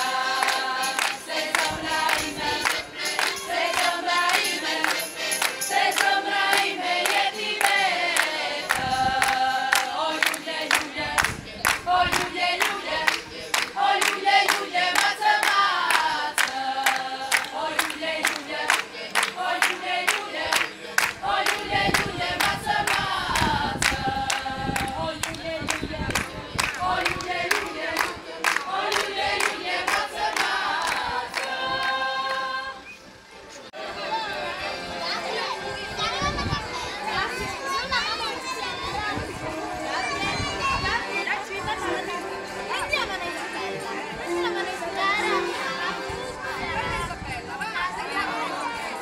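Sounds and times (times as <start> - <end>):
rhythmic hand clapping: 0.0 - 32.5
women singing together: 0.0 - 33.1, 38.8 - 49.0.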